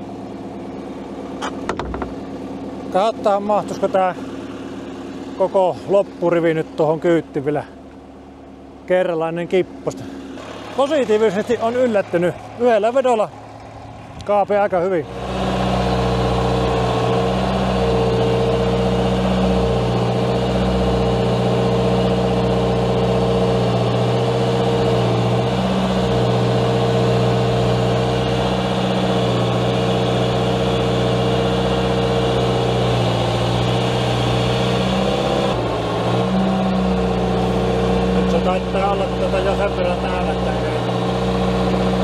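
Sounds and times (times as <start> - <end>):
loader engine running: 0.0 - 42.0
steady whine: 32.0 - 42.0.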